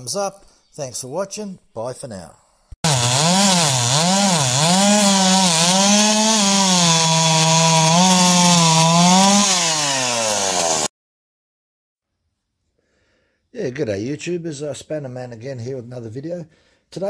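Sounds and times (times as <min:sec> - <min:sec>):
chainsaw cutting logs: 0:02.8 - 0:10.9.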